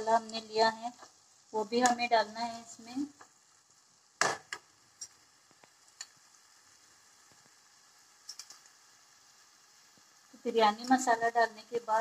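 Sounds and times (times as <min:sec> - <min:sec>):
masala sizzling in pan: 0:00.0 - 0:12.0
light utensil clicks: 0:08.2 - 0:08.8.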